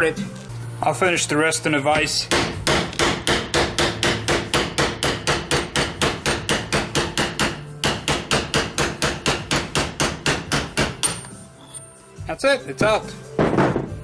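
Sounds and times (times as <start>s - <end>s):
hammer striking steel: 2.0s - 11.4s.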